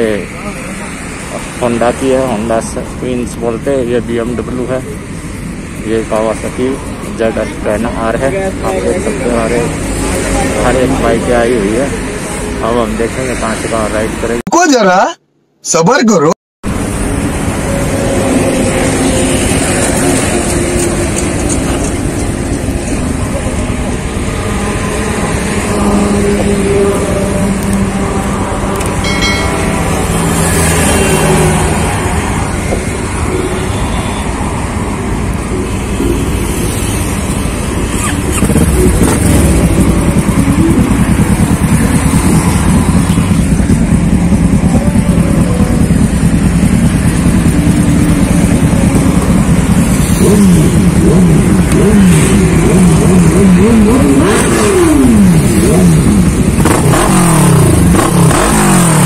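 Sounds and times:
motorcycle engines idling: 0:16.7 - 0:33.4, 0:35.2 - 0:59.0
motorcycle pulling away and revving: 0:16.7 - 0:33.4, 0:35.0 - 0:59.0.

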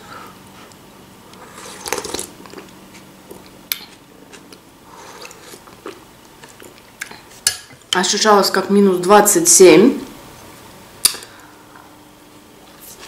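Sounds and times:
sipping and chewing: 0:00.7 - 0:07.3
noisy slurp: 0:01.3 - 0:04.0.

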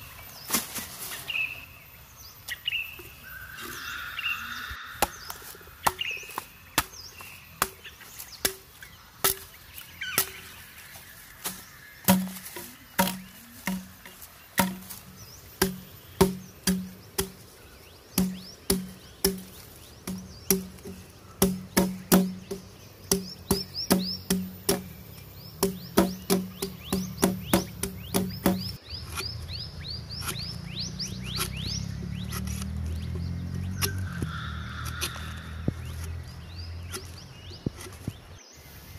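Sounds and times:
birds chirping: 0:00.0 - 0:38.9
tool knocking on wood: 0:12.1 - 0:17.4, 0:18.2 - 0:24.9, 0:25.6 - 0:28.8.

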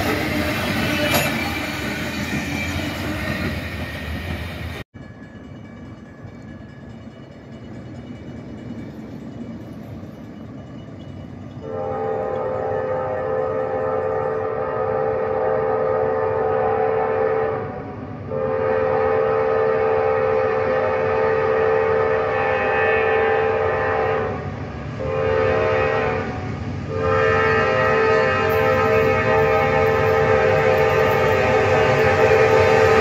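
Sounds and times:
locomotive air horn blasts: 0:11.6 - 0:33.0.

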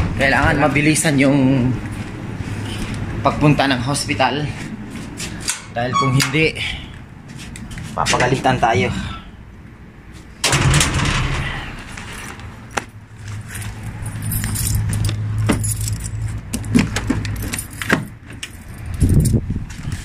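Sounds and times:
keys jangling: 0:13.5 - 0:19.4.

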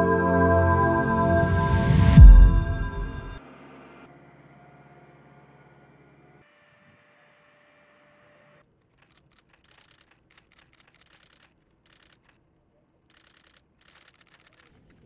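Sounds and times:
camera shutters clicking: 0:08.9 - 0:15.0.

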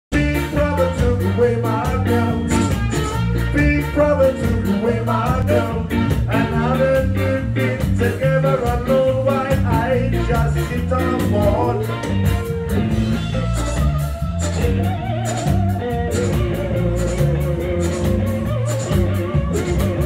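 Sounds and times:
drum kit beat: 0:00.1 - 0:20.0
electric guitar: 0:00.1 - 0:20.0.

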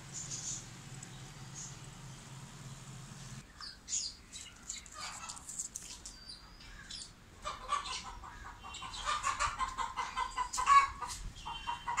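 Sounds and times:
chickens clucking: 0:07.4 - 0:12.0.

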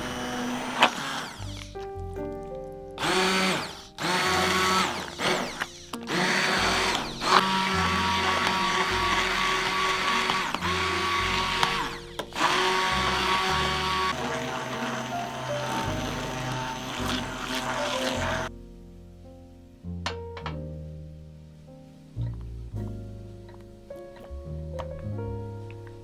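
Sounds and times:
immersion blender motor running: 0:00.0 - 0:01.7, 0:03.0 - 0:18.5.

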